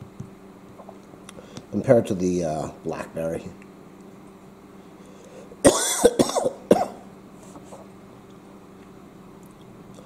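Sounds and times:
man coughing: 5.6s - 7.1s.

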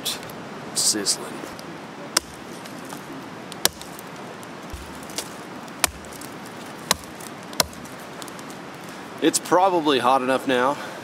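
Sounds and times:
hatchet chopping wood: 2.2s - 2.5s, 3.6s - 4.0s, 4.7s - 7.9s.

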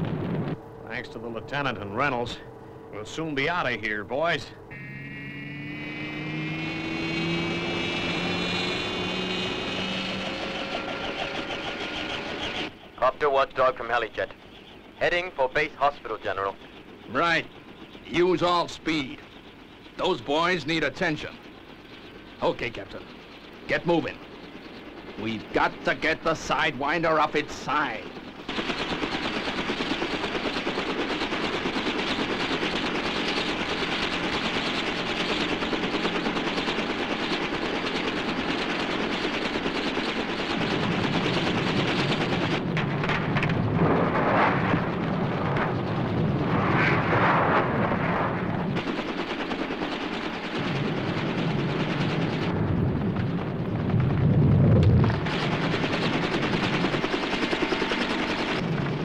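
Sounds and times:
deep rumble: 0.0s - 11.4s, 40.6s - 48.8s, 50.6s - 56.0s
dense rattling crackle: 10.1s - 59.0s.

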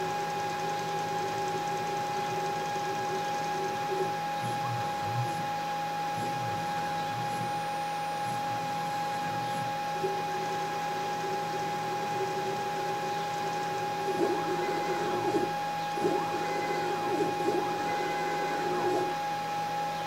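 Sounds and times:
stepper motors whining: 6.2s - 19.2s.

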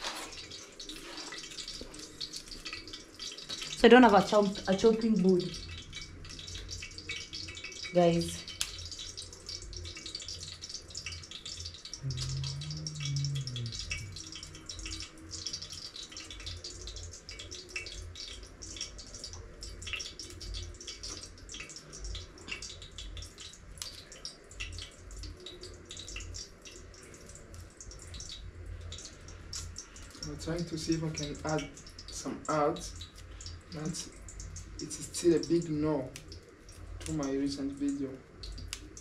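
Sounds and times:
small crackles and ticks: 0.0s - 39.0s
low hum: 12.0s - 14.7s.

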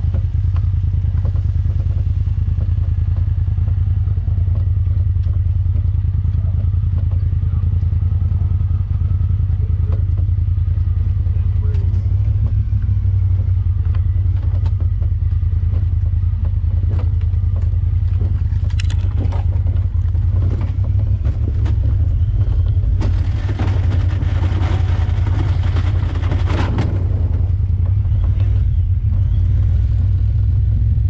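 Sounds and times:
vehicle engine running: 0.0s - 31.0s
rough clattering: 13.7s - 29.4s.

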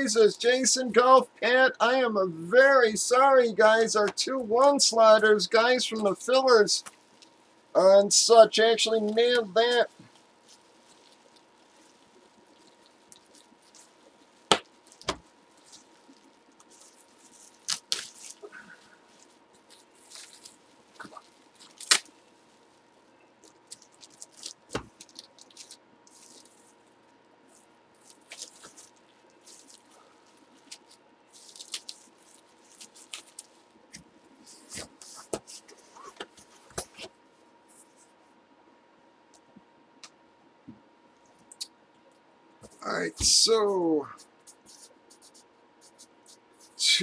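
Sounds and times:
faint steady hum: 0.0s - 47.0s
bubble wrap crinkling and clicks: 6.8s - 7.7s, 8.8s - 37.1s.

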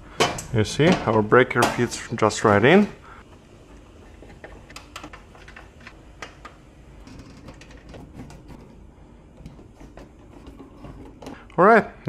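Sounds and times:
metal cover being handled: 0.2s - 2.1s.

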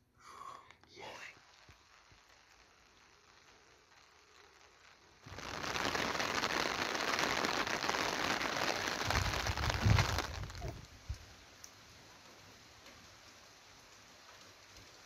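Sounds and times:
rush of storm noise: 5.3s - 11.2s.

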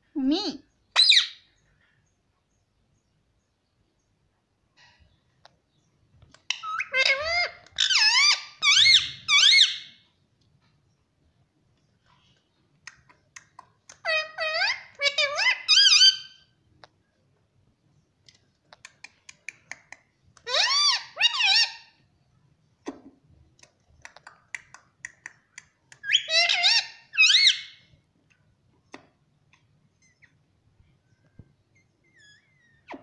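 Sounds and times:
parrot calling: 1.0s - 1.4s, 6.5s - 10.0s, 14.0s - 16.5s, 20.4s - 21.9s, 26.0s - 27.8s.

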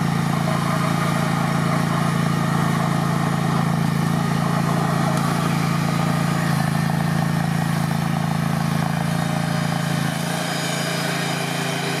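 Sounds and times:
stump grinder engine running: 0.0s - 12.0s.

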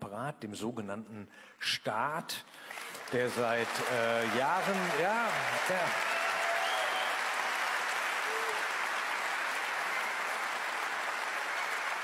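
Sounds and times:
large audience applauding: 2.6s - 12.0s.

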